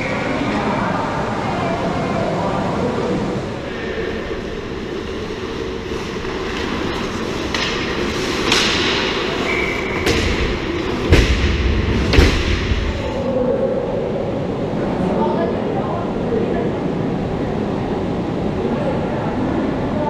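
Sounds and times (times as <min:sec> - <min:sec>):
skate blades scraping ice: 0:04.9 - 0:11.3
stick and puck clacks: 0:06.2 - 0:11.4
heavy thumps around goal: 0:07.4 - 0:12.9.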